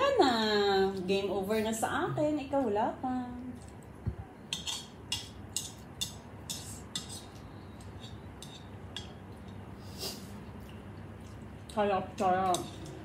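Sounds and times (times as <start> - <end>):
cutlery clinking against bowl: 4.5 - 9.6, 12.2 - 13.0.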